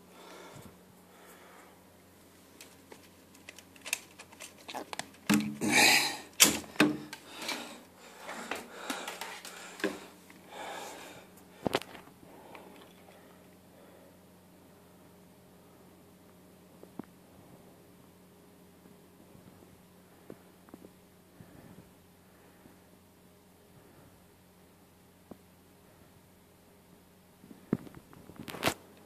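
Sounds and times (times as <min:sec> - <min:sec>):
handling clicks and knocks: 0:02.6 - 0:05.6.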